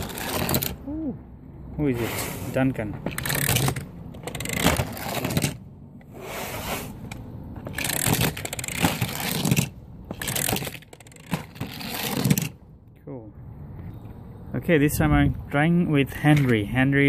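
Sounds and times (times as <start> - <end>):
metal toy engine rattling on plastic track: 0.0 - 0.8, 3.1 - 5.6, 7.6 - 12.5.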